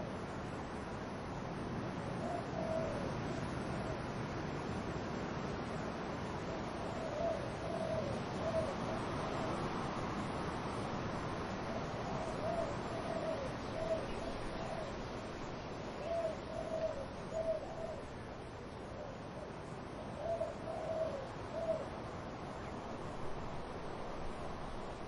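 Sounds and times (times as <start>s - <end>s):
wind in trees: 0.0s - 25.0s
dove cooing: 2.2s - 3.1s, 6.7s - 9.8s, 11.6s - 15.1s, 16.0s - 18.2s, 18.8s - 22.0s.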